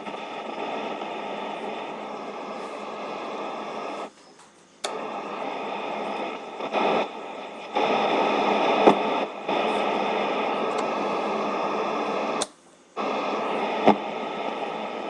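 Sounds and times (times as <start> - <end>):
radio static and hiss: 0.0 - 15.0
sharp clicks: 4.0 - 5.1, 12.3 - 12.6.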